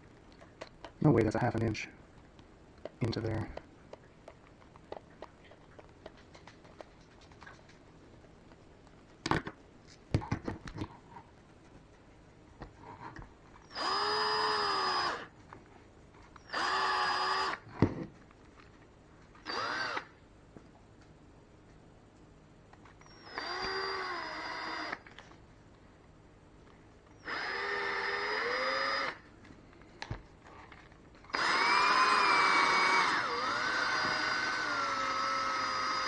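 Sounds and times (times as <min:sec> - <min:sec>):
electric drill motor whine: 0:13.6 - 0:15.3, 0:16.4 - 0:17.7, 0:19.4 - 0:20.2, 0:23.0 - 0:25.2, 0:27.1 - 0:29.3, 0:31.3 - 0:36.0.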